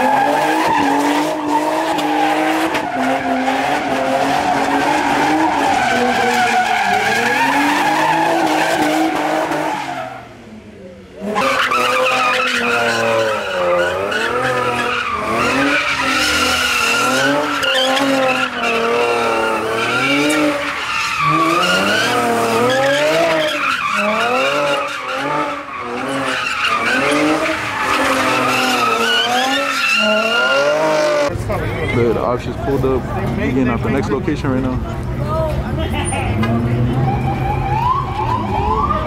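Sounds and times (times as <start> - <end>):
tyres screeching: 0.0 - 10.2, 11.2 - 31.3
car engine revving: 0.0 - 31.8.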